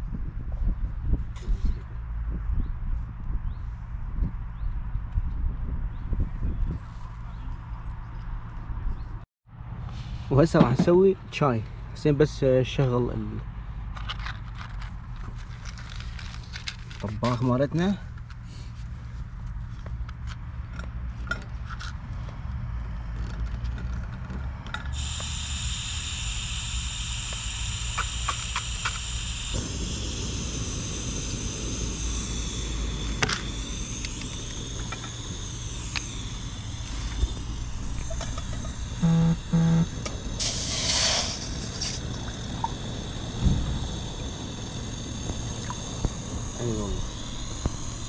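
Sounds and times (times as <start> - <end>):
gas stove hissing: 25.0 - 48.0
small clicks: 27.2 - 29.3
short low beeps: 39.0 - 40.0.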